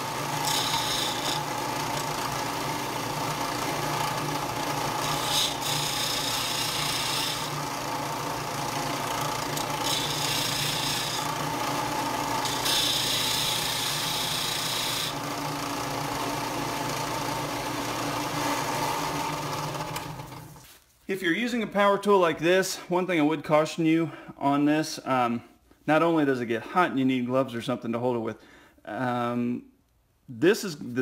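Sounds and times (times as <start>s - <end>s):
sander grinding metal: 0.0s - 20.4s
sander motor humming: 0.0s - 20.6s.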